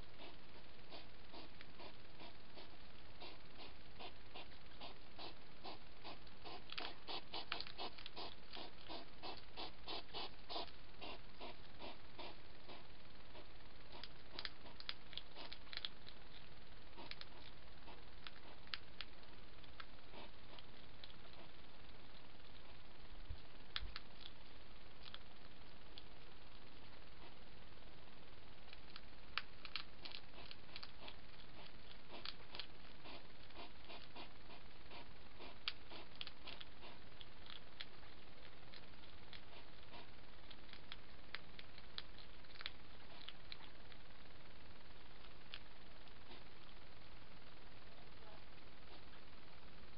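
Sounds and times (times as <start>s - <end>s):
hedgehogs feeding clicks and crackles: 0.0s - 49.9s
steady low hiss: 0.0s - 49.9s
hedgehog huffs: 0.1s - 15.6s, 20.1s - 20.6s, 30.0s - 37.0s.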